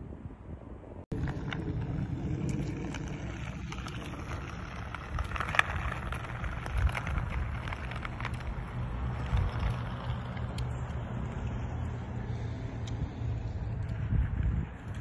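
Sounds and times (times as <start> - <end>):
wind on microphone: 0.0 - 11.6, 12.2 - 15.0
skates rumbling on ice: 1.1 - 12.5
poles clicking and scraping: 1.1 - 15.0.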